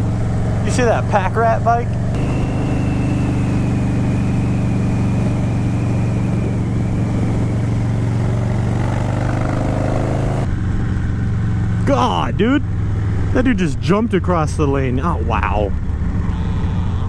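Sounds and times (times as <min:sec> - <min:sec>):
motorcycle engine cruising: 0:00.0 - 0:17.0
faint high whine: 0:02.2 - 0:07.5
wind rush on microphone: 0:02.2 - 0:09.2.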